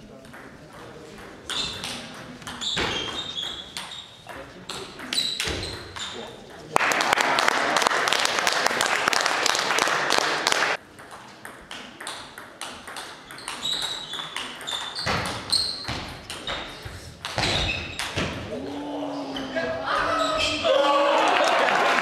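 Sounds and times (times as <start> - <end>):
shoes squeaking on floor: 1.5 - 6.4, 13.2 - 18.4, 19.1 - 20.7
crowd noise: 6.2 - 11.4, 18.3 - 22.0.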